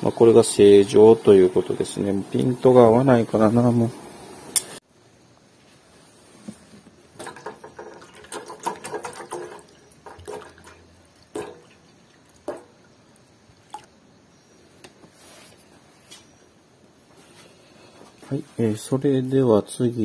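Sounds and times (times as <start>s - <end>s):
water drips: 7.2s - 13.9s
water splashing in pot: 7.2s - 13.9s.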